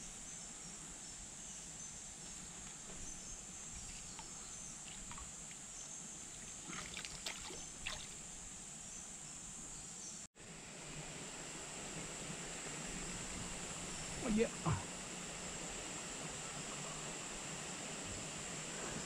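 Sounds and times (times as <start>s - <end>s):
insects droning: 0.0s - 19.0s
stream flowing: 3.8s - 8.8s, 10.4s - 19.0s
fish splashing in water: 6.5s - 8.2s.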